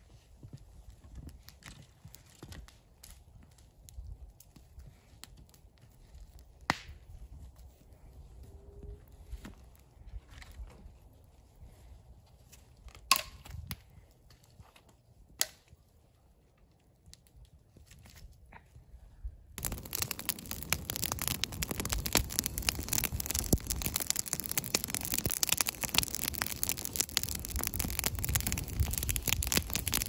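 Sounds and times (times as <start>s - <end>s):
wood fire crackling and hissing: 0.0s - 18.4s, 19.6s - 30.0s
wood knocking onto campfire: 19.6s - 30.0s.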